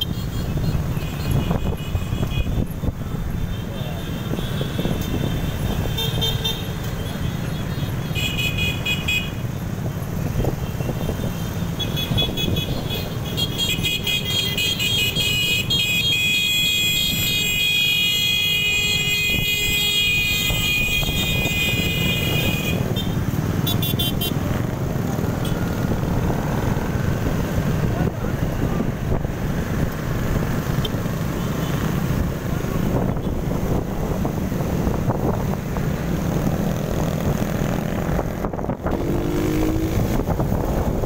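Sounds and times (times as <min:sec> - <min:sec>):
vehicle horns honking: 0:00.0 - 0:02.7, 0:03.4 - 0:06.8, 0:08.1 - 0:09.5, 0:10.8 - 0:24.4
motorcycle engine and wind rumble: 0:00.0 - 0:41.0.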